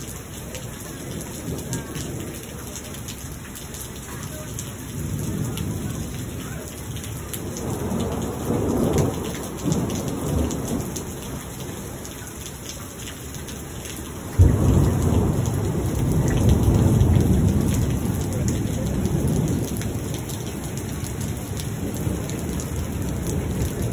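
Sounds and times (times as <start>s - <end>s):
steady rain: 0.0s - 23.9s
ticking of raindrops: 0.0s - 23.9s
thunder rumbling: 0.9s - 12.5s, 13.4s - 23.9s
loud thunderclap: 7.4s - 11.4s, 14.3s - 23.9s.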